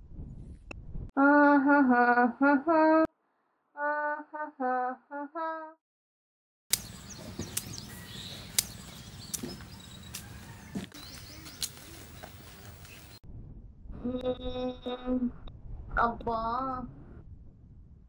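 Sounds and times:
girl humming: 0:01.2 - 0:03.0, 0:14.0 - 0:15.4
birds chirping: 0:06.7 - 0:13.2
sharp clicks: 0:06.7 - 0:13.2.

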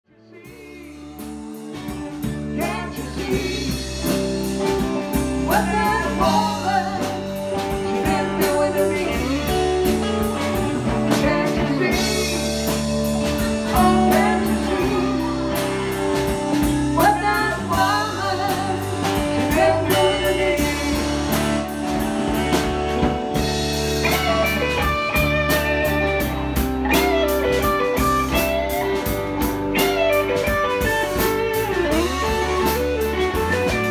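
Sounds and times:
lead vocal singing: 0:00.1 - 0:22.2
live rock band playing: 0:00.3 - 0:33.9.

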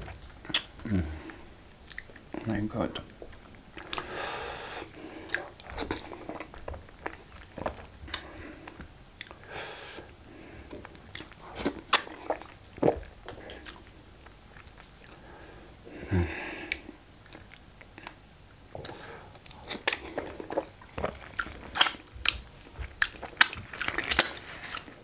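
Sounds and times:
wet chewing and lip smacks: 0:00.0 - 0:00.9, 0:01.8 - 0:02.4, 0:03.0 - 0:04.1, 0:05.2 - 0:09.4, 0:10.7 - 0:15.2, 0:16.7 - 0:24.9.

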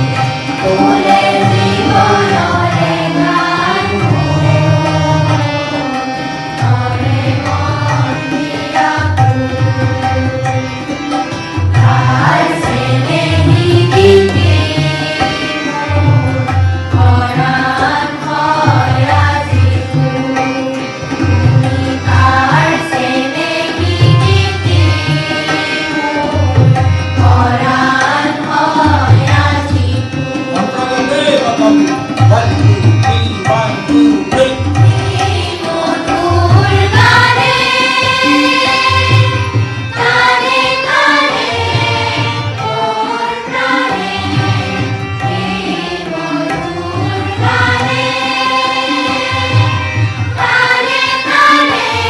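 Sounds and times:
children singing together: 0:00.0 - 0:31.9, 0:33.0 - 0:52.0.

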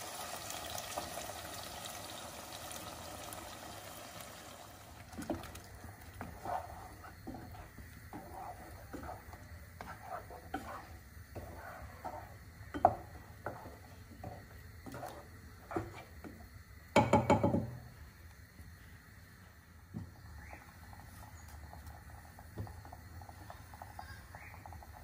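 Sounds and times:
wooden spatula scraping a saucepan: 0:05.2 - 0:16.4
louder knocks on a pan: 0:17.0 - 0:17.8.

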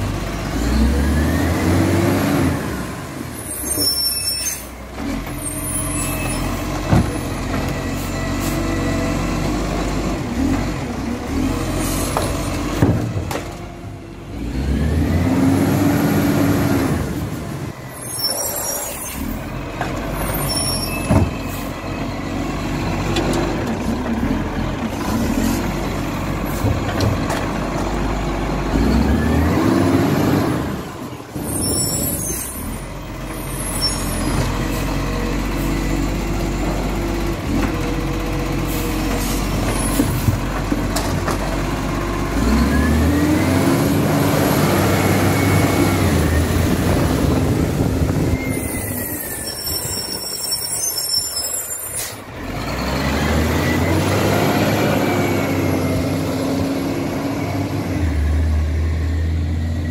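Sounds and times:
garbage truck diesel engine: 0:00.0 - 0:59.9
air brakes hissing: 0:48.5 - 0:52.3.

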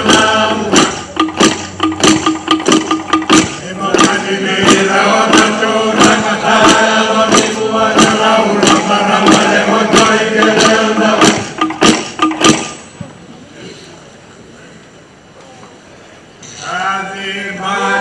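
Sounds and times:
men chanting in unison: 0:00.0 - 0:01.0, 0:03.6 - 0:11.6
unison hand-clapping: 0:00.1 - 0:12.7.

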